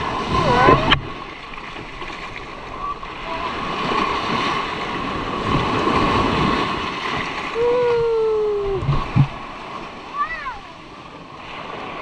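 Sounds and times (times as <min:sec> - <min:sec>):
sea water splashing: 0:00.0 - 0:12.0
held falling tone: 0:07.6 - 0:09.2.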